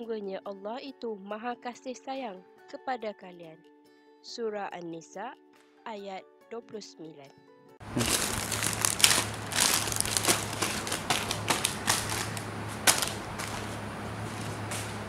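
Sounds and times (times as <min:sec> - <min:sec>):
steady low hum: 0:07.8 - 0:15.0
plastic bag rustling: 0:07.9 - 0:15.0.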